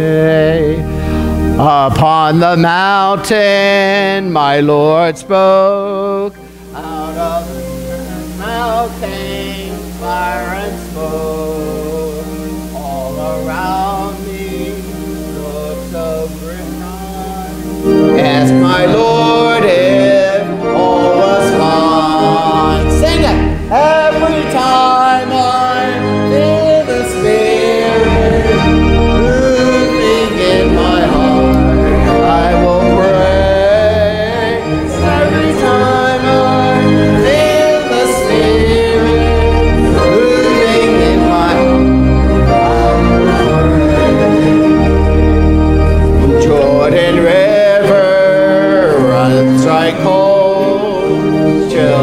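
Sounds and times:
gospel music with singing: 0.0s - 52.0s
low bass line: 26.0s - 37.4s.

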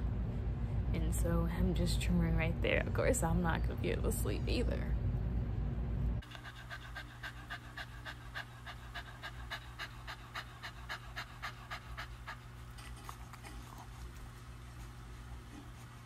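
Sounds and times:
dog panting fast: 6.2s - 16.0s.

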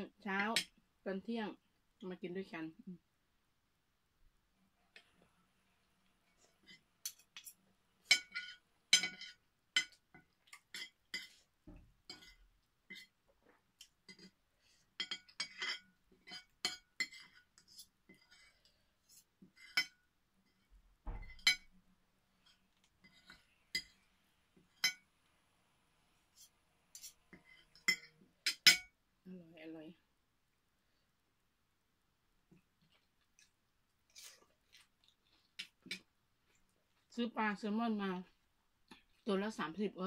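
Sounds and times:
cutlery clinking on a plate: 7.0s - 11.4s, 15.0s - 17.4s, 21.2s - 21.7s, 27.7s - 28.9s.

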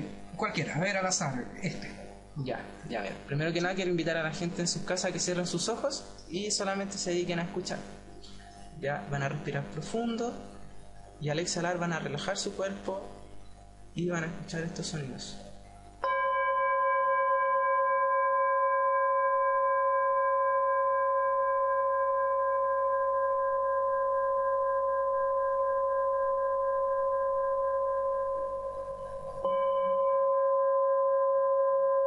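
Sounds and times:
singing bowl ringing: 16.0s - 32.0s.

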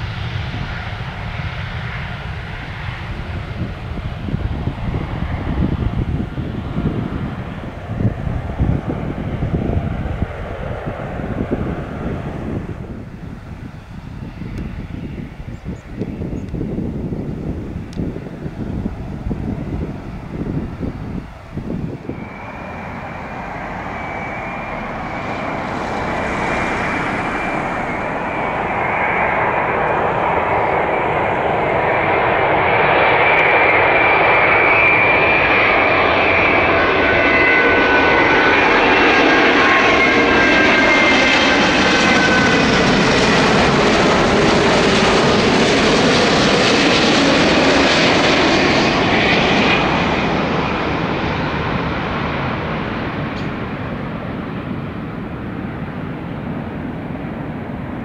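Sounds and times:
jet plane landing: 0.0s - 58.0s
high fan whine: 11.3s - 31.3s.

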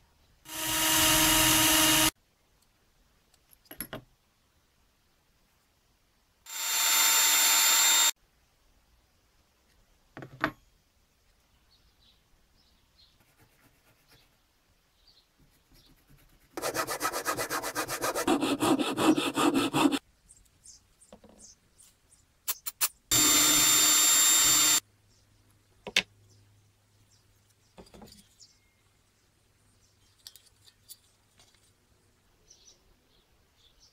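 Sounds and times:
cordless drill running: 0.5s - 2.1s, 6.5s - 8.1s, 23.1s - 24.8s
hand saw cutting wood: 16.6s - 20.0s
clicks of small parts handled: 30.0s - 31.8s.

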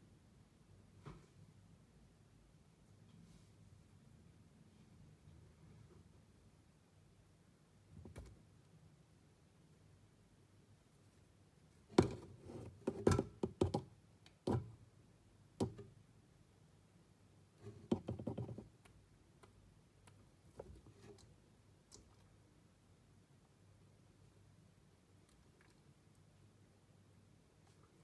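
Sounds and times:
knocks on glass terrarium: 17.8s - 18.6s.

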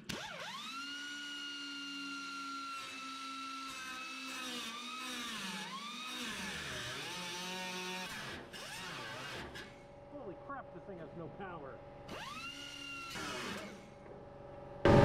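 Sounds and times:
cutoff wheel cutting sheet steel: 0.0s - 9.8s, 12.1s - 14.0s.

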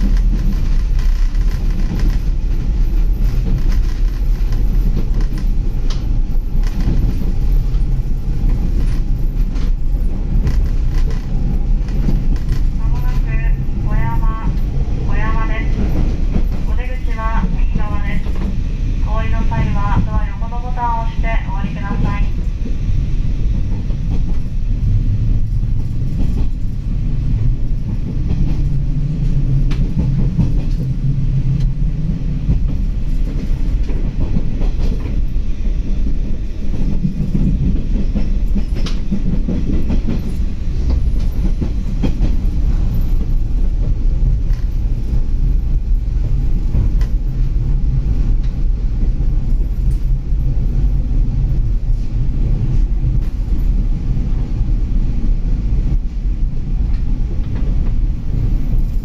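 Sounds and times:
wheels clicking over rail joints: 0.0s - 13.1s
train low rumble: 0.0s - 59.0s.

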